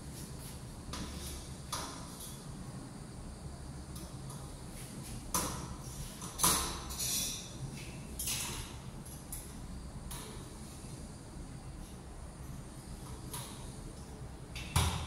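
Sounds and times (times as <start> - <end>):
steady low hum: 0.0 - 15.0
metal window grill clicking and scraping: 6.2 - 7.6.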